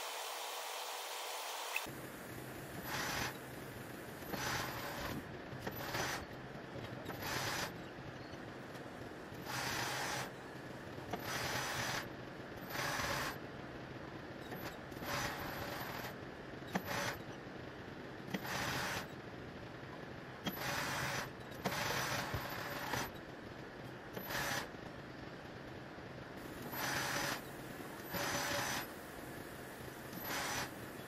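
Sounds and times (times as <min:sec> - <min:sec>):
sewing machine running in bursts: 0:02.8 - 0:03.4, 0:04.0 - 0:06.3, 0:07.1 - 0:07.9, 0:09.4 - 0:10.4, 0:11.1 - 0:13.4, 0:14.6 - 0:17.2, 0:18.3 - 0:19.2, 0:20.5 - 0:23.2, 0:24.2 - 0:24.8, 0:26.4 - 0:31.0.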